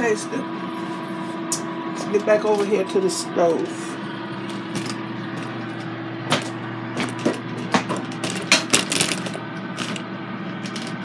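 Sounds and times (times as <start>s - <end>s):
air fryer humming: 0.0s - 11.0s.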